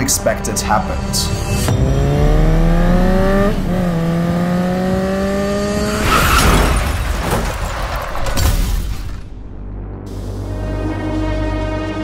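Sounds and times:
motorbike engine accelerating: 1.6s - 6.1s
noisy crash: 5.8s - 9.8s.

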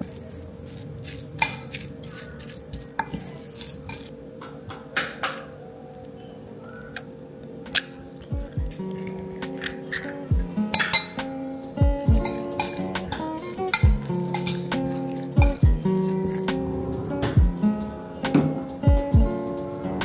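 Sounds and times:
spoon stirring ground meat: 0.0s - 4.1s, 8.4s - 11.2s, 12.0s - 17.3s
spoon clinking against glass: 10.7s - 11.2s, 12.2s - 16.3s.

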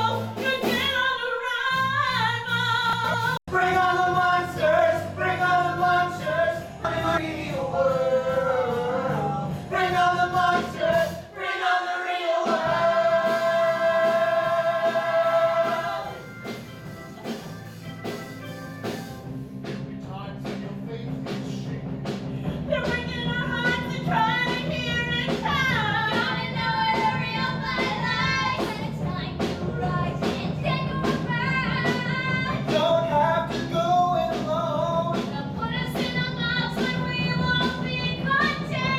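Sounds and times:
voices singing: 2.4s - 16.5s, 22.6s - 38.9s
instrumental accompaniment: 12.5s - 34.6s.

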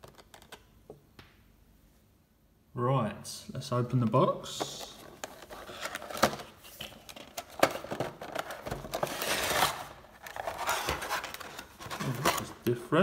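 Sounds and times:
plastic tray scraping out of box: 7.6s - 12.6s.

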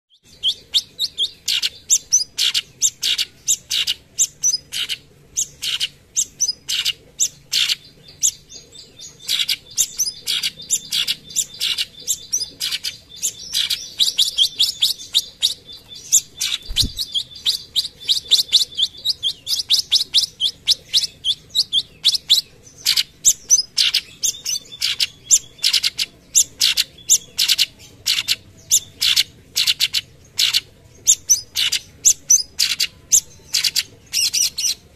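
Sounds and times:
bird singing sharp high chips: 9.2s - 22.3s.

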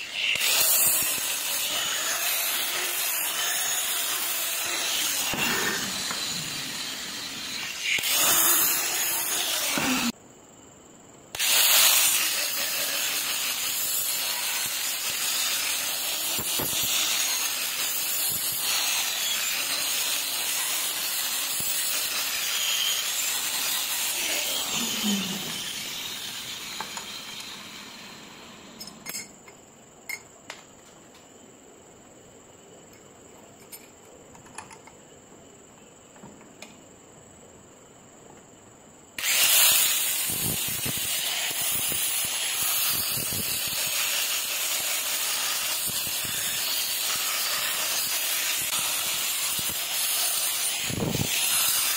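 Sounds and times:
angle grinder grinding steel: 0.0s - 10.2s, 11.4s - 29.0s, 39.2s - 51.9s.

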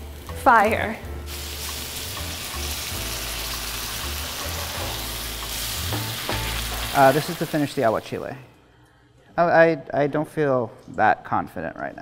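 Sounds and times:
broth sizzling in hot pan: 0.0s - 8.3s.

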